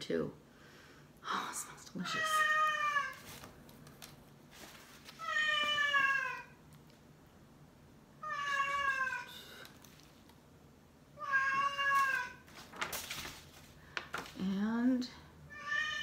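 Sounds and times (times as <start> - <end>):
cat meowing: 2.1 - 3.2, 5.2 - 6.6, 8.2 - 9.6, 11.2 - 12.4, 15.5 - 16.0.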